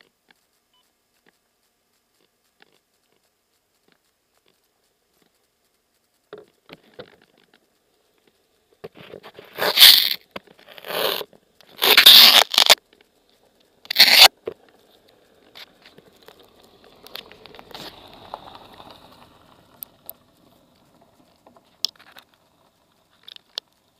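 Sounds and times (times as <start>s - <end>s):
soft rustling: 0.0s - 23.9s
handling scrapes on microphone: 8.9s - 12.8s, 13.9s - 14.3s.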